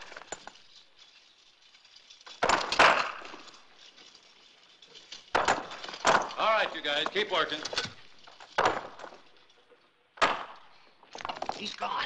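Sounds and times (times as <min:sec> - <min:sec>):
sledgehammers striking rocks: 0:02.4 - 0:03.5, 0:05.3 - 0:07.0, 0:08.4 - 0:09.2, 0:10.2 - 0:10.8.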